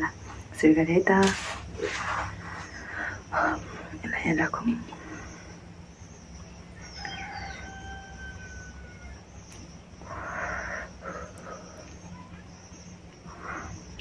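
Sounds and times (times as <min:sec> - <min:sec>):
rooster crowing: 0:06.8 - 0:09.5.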